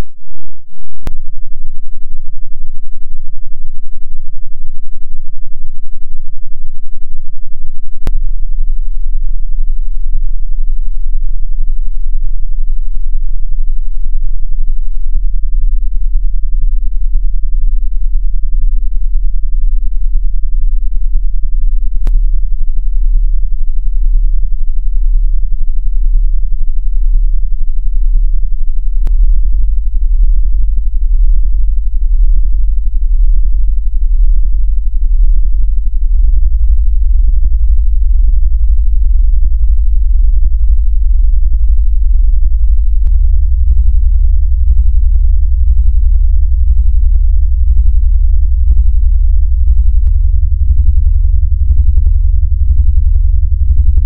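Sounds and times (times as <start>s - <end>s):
deep electronic drone: 0.0s - 54.0s
second deep tone: 29.0s - 54.0s.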